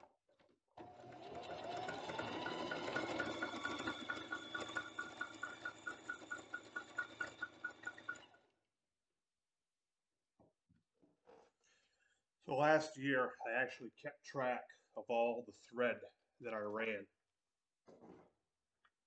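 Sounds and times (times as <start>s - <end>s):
sewing machine motor whine: 0.8s - 8.5s
sewing machine ticking: 0.8s - 8.5s.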